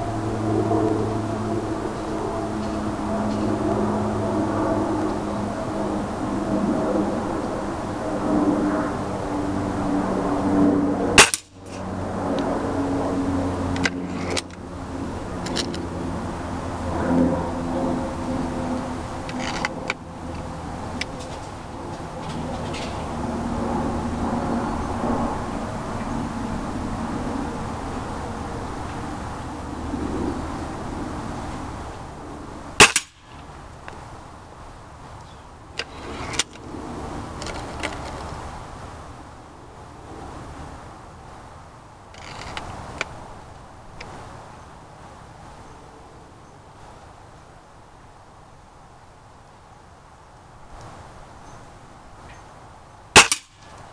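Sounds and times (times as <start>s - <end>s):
steady low hum: 0.0s - 53.9s
air rifle firing: 11.2s - 11.5s, 32.8s - 33.3s, 53.2s - 53.6s
pellet knocking metal target: 11.2s - 11.6s, 32.8s - 33.2s, 53.2s - 53.6s.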